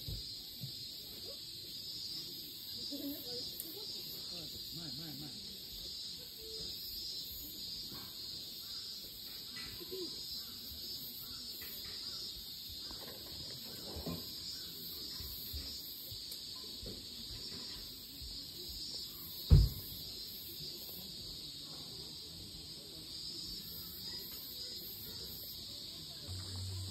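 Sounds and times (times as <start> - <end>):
insects chirping: 0.0 - 26.9
sharp thump: 19.4 - 20.0.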